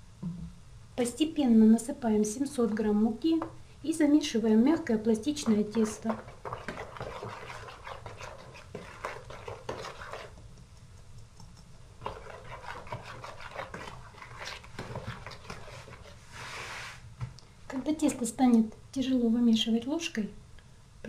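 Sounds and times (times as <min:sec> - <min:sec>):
spoon scraping a plastic bowl: 0:05.4 - 0:10.4, 0:12.0 - 0:17.0.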